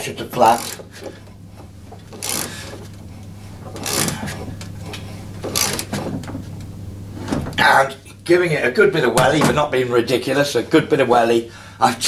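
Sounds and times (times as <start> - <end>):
ratchet clicking: 0.5 - 0.9, 2.1 - 2.9, 3.8 - 4.4, 5.4 - 6.0.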